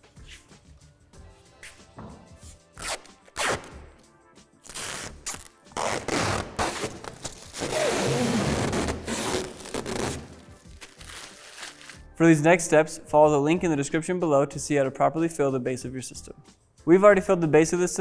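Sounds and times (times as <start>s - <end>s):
plastic film crackling as peeled: 4.7s - 12.0s.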